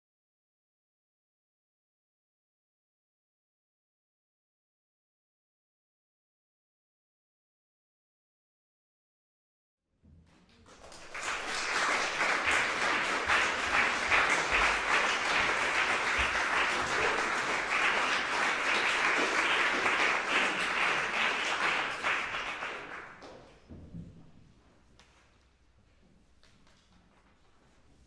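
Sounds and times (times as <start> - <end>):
audience applauding: 10.5 - 23.4.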